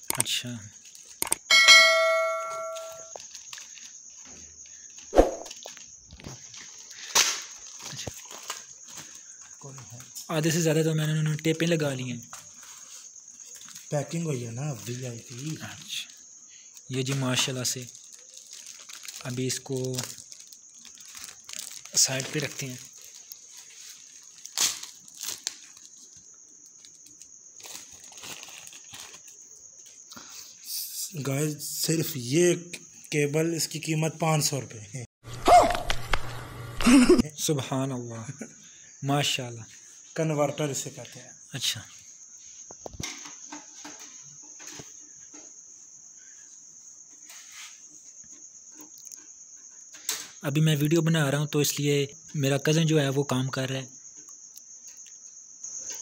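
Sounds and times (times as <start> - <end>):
steady high-pitched tone: 1.5 - 3.1
plastic bag crinkling: 3.1 - 4.3, 5.5 - 9.2, 17.1 - 29.5.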